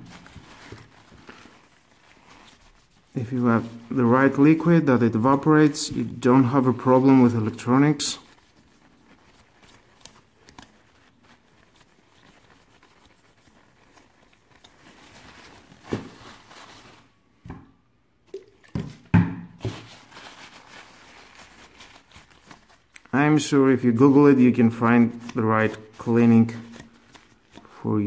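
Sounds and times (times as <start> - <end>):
tissue crinkling over fan blades: 0.0 - 17.2, 19.6 - 28.0.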